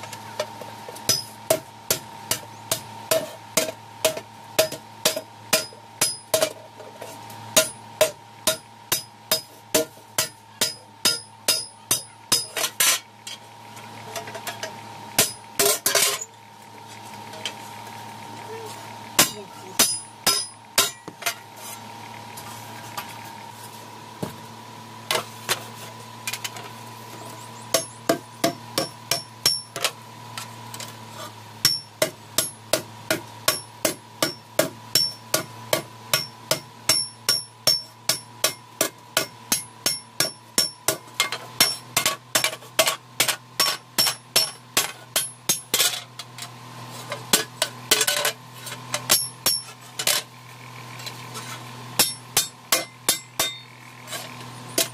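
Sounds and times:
hammer striking iron on anvil: 0.4s - 6.6s, 7.5s - 13.0s, 14.6s - 16.2s, 19.2s - 21.4s, 27.7s - 30.0s, 31.6s - 46.0s, 49.0s - 50.2s, 52.0s - 53.7s.

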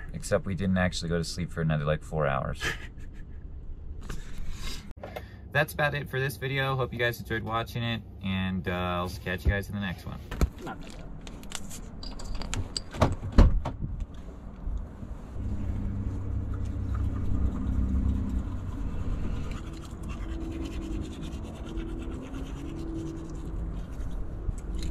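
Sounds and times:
steady low hum: 13.8s - 24.9s
teeth being brushed: 16.6s - 24.9s.

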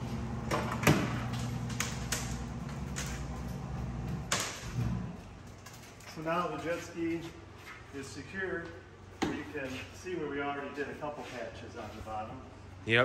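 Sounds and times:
motor running with low hum: 0.0s - 6.1s.

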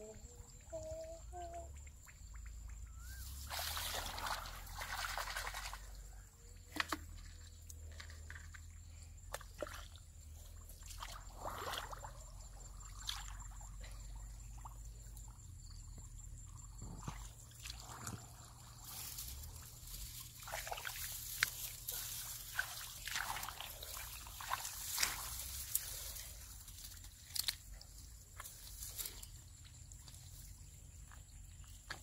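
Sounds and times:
small splashes and trickles: 0.5s - 15.4s, 16.3s - 32.0s
hands sloshing in muddy water: 3.0s - 15.1s, 17.0s - 30.5s.

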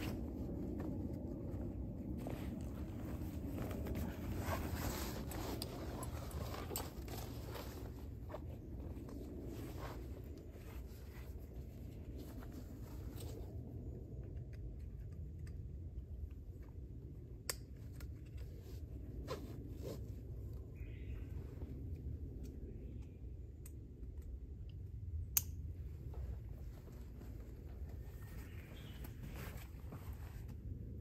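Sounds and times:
fabric rustling: 0.0s - 13.5s, 26.1s - 30.5s
steady low background noise: 0.0s - 31.0s.

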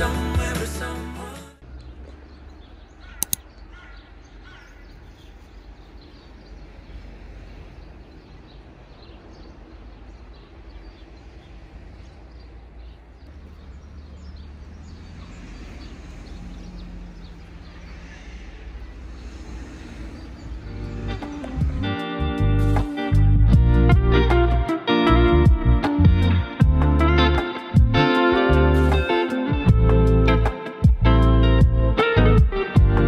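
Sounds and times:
sharp clicks: 3.2s - 3.5s
low rumble: 17.1s - 24.3s.

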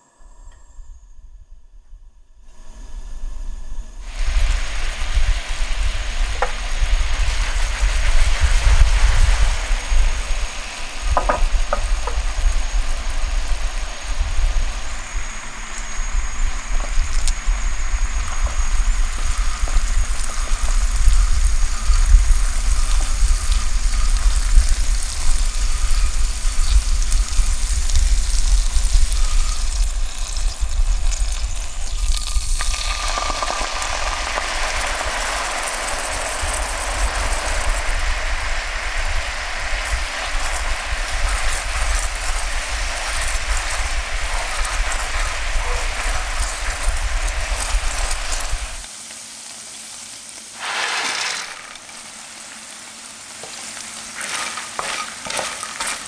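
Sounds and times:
steady low rumble: 0.0s - 32.7s
syrup boiling and sizzling in pan: 2.5s - 56.0s.

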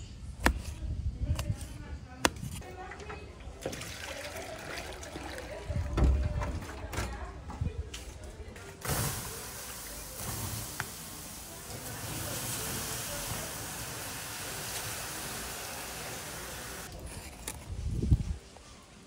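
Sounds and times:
water pouring from bucket: 3.6s - 5.8s
embers hissing: 8.8s - 16.9s.

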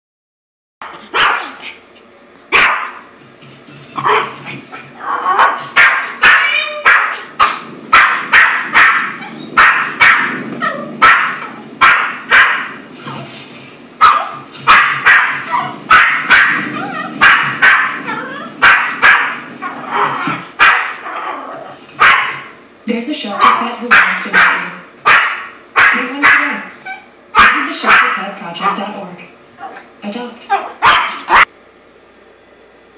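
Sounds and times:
small dog yapping: 0.8s - 1.7s, 2.5s - 3.0s, 4.0s - 12.7s, 14.0s - 22.5s, 23.4s - 28.8s, 30.5s - 31.5s.

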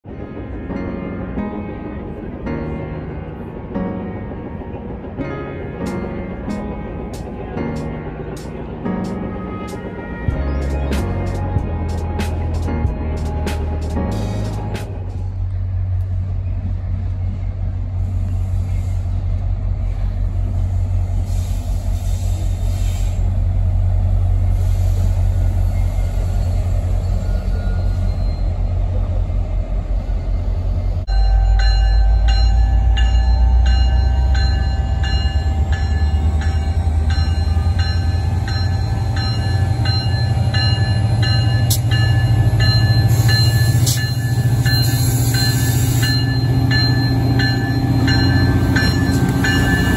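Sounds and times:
diesel locomotive engine drone: 0.0s - 49.9s
train warning bell ringing: 31.1s - 49.9s.

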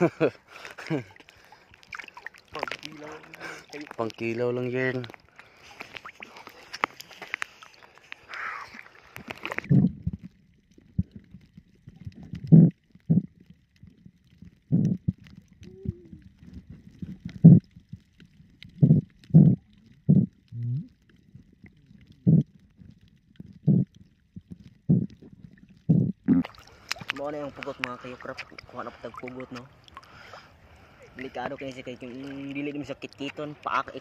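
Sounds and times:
muffled underwater knocks and gurgles: 9.2s - 28.7s.

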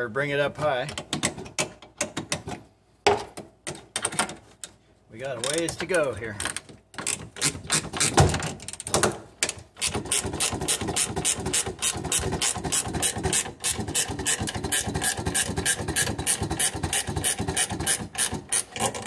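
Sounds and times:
ratchet wrench clicking: 9.8s - 18.9s.

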